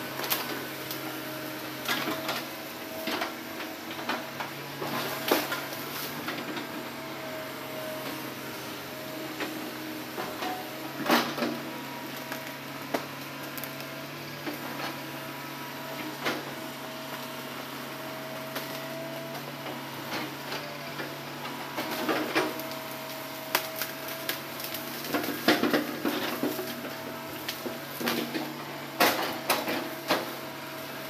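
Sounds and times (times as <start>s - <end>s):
excavator running: 0.0s - 31.0s
branches and logs cracking: 21.8s - 30.4s.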